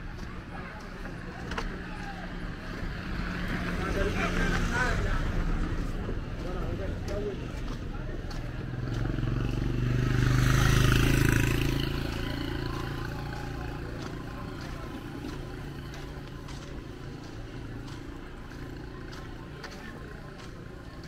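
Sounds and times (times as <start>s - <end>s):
motorcycle passing by: 7.4s - 21.0s.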